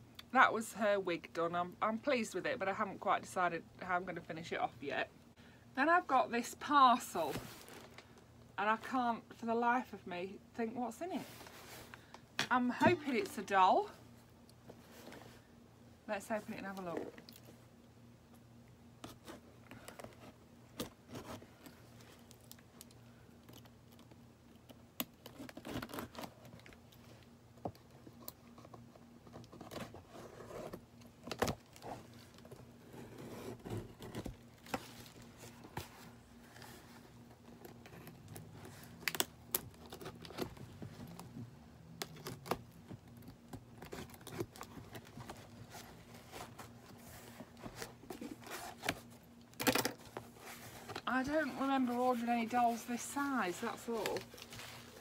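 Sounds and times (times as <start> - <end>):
cardboard and packing rustling: 7.0 - 8.2, 10.7 - 15.5, 19.0 - 24.2, 25.2 - 55.0.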